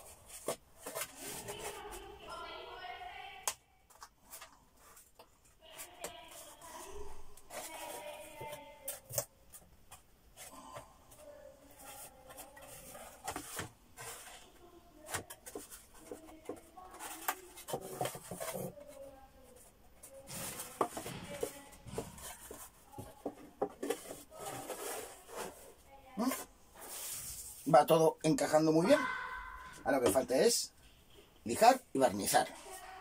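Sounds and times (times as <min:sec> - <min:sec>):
wood rubbing and scraping: 0:00.0 - 0:02.4, 0:03.9 - 0:27.7.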